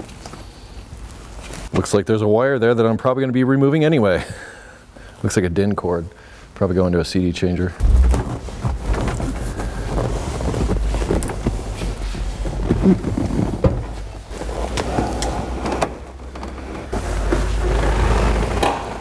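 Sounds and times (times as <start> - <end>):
low rumble: 7.8 - 10.4
seat knocking and scraping: 7.8 - 15.2.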